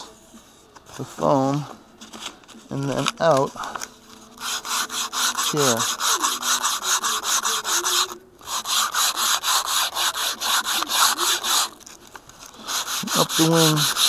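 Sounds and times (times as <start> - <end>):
sandpaper rubbing on foam: 4.4 - 11.8, 12.6 - 14.0.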